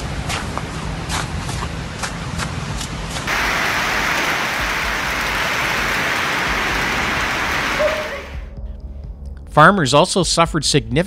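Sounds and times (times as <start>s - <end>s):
hailstones hitting the ground: 3.3s - 8.2s.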